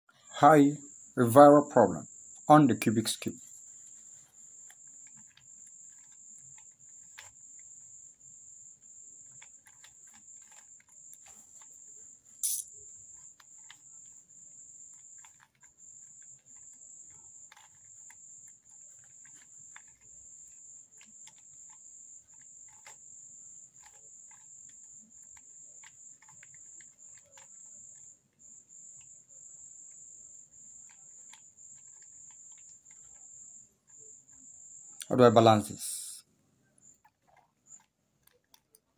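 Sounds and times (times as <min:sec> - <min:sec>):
plastic puzzle cube clicks: 0:09.3 - 0:11.3, 0:17.5 - 0:17.9, 0:22.3 - 0:23.0, 0:23.8 - 0:27.5
high-pitched trill: 0:12.4 - 0:12.6.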